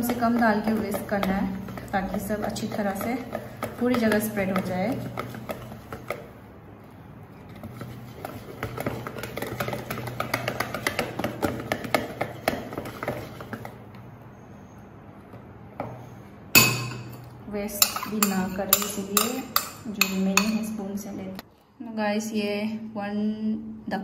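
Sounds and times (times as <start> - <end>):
whisk tapping against bowl: 0.0 - 6.5, 7.5 - 14.0, 16.6 - 20.8.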